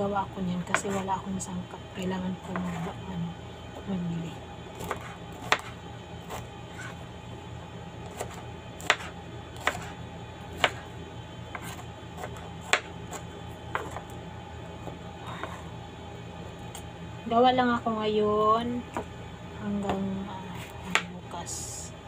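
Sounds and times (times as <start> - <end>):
knife chopping on plastic board: 0.7 - 1.0, 2.5 - 2.9, 4.8 - 7.0, 8.0 - 10.9, 11.5 - 14.1, 20.6 - 21.1.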